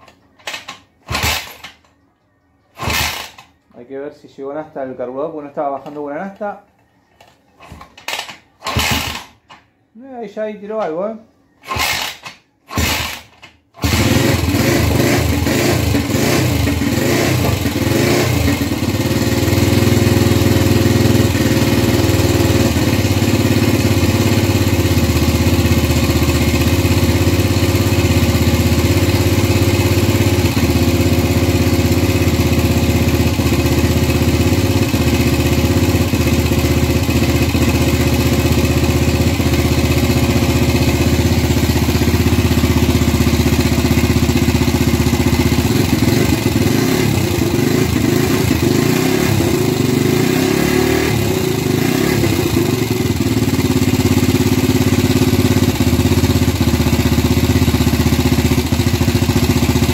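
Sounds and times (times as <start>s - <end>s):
motorcycle engine idling unevenly: 13.8s - 50.0s, 51.2s - 59.9s.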